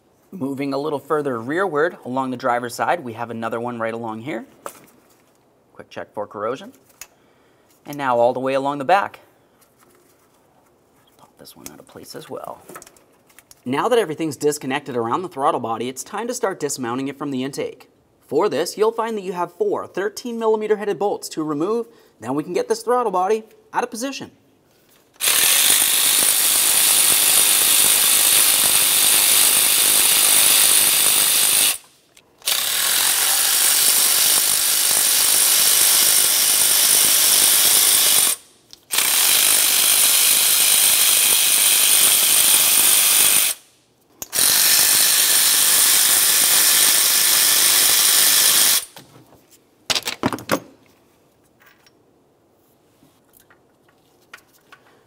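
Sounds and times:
power ratchet spinning: 0:25.2 - 0:49.0.

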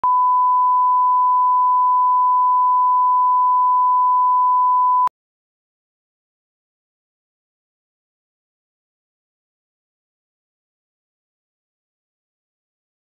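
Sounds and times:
pure test tone beep: 0:00.0 - 0:05.1.

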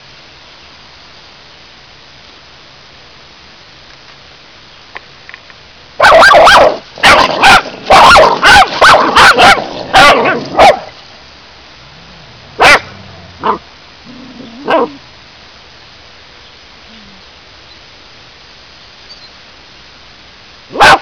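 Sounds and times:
dog barking: 0:06.0 - 0:10.9, 0:12.6 - 0:13.6, 0:14.6 - 0:15.0, 0:20.7 - 0:21.0.

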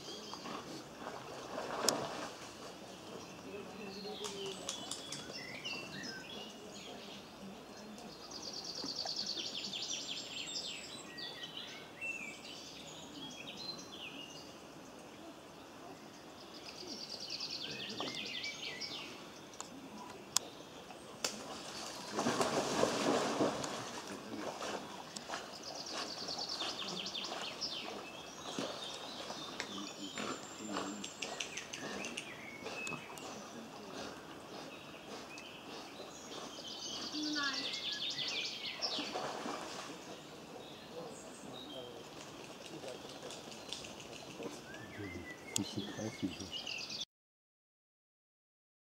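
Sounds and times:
outdoor background noise: 0:00.0 - 0:47.0
songbird trilling: 0:25.1 - 0:39.2.

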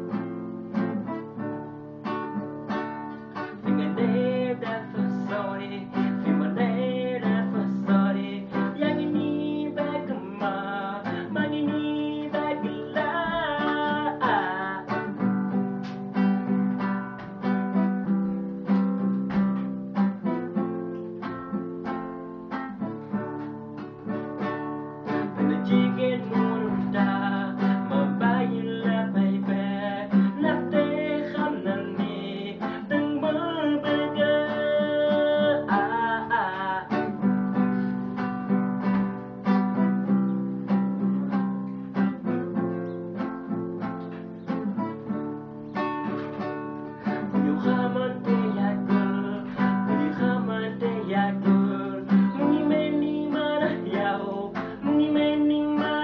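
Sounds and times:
acoustic guitar strumming: 0:00.0 - 0:56.0
man singing: 0:03.3 - 0:17.5, 0:25.0 - 0:40.2, 0:46.9 - 0:56.0.

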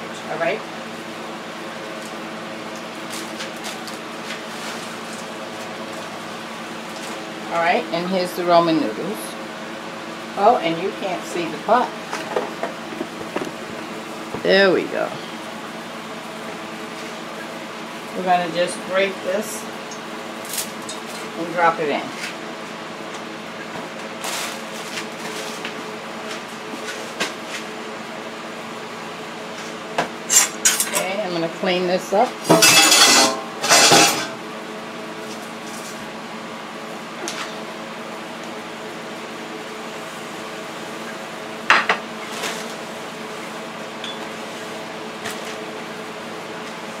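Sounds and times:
steady mechanical hum: 0:00.0 - 0:47.0
kitchenware clinking: 0:32.5 - 0:34.3
kitchenware clattering: 0:32.5 - 0:34.4.

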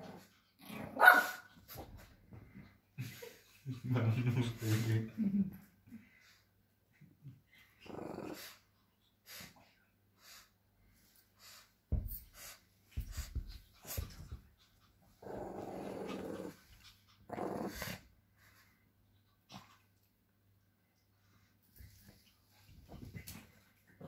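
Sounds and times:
small dogs growling in play: 0:00.0 - 0:03.8, 0:06.9 - 0:08.8, 0:13.7 - 0:18.7.

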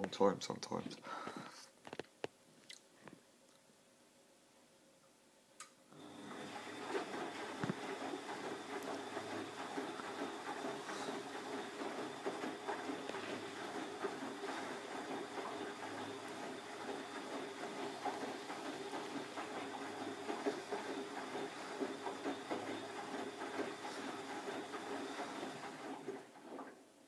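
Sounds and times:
washing machine motor humming: 0:05.9 - 0:27.0
water sloshing in drum: 0:06.2 - 0:26.9.

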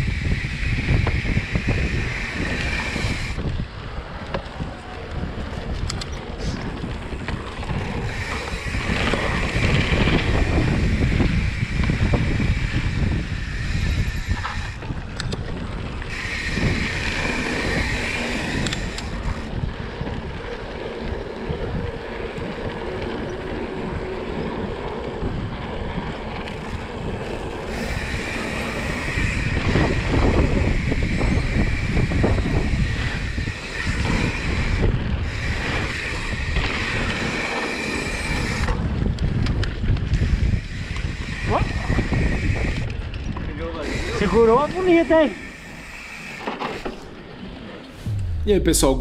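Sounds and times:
bike tyres rumbling on dirt: 0:00.0 - 0:43.9
wind buffeting microphone: 0:00.0 - 0:45.8
higher buzz: 0:48.0 - 0:49.0.

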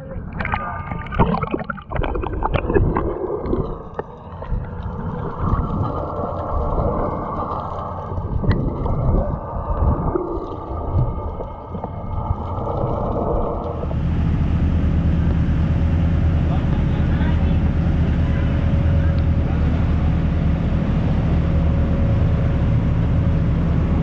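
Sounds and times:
crackling bubbles: 0:00.0 - 0:14.4
water splashing: 0:00.0 - 0:16.5
muffled underwater churning water: 0:00.0 - 0:24.0.

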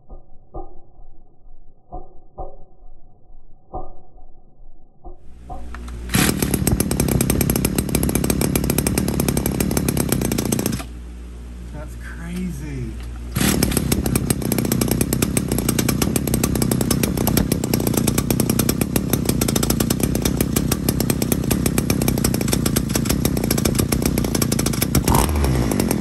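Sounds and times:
small two-stroke engine running: 0:05.3 - 0:11.0, 0:12.1 - 0:26.0.

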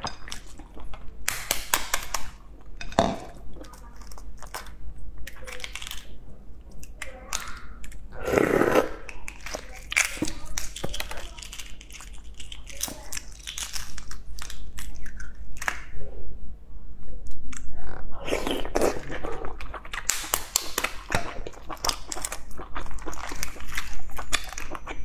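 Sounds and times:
eggshell crackling: 0:00.0 - 0:16.0, 0:18.3 - 0:25.0.

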